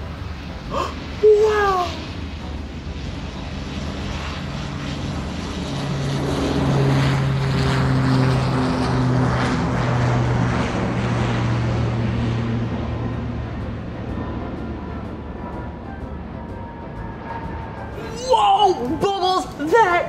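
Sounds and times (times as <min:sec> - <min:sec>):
fighter jets flying over: 0:00.0 - 0:20.0.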